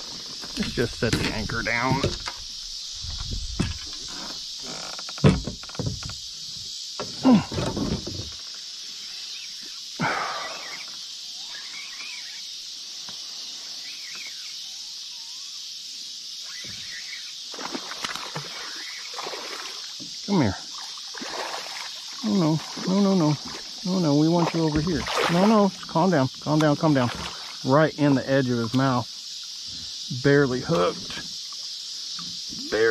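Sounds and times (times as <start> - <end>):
steady high background hiss: 0.0 - 32.9
knocks and thuds on small boat: 0.4 - 2.4, 3.0 - 4.4, 5.0 - 6.2, 7.0 - 8.4.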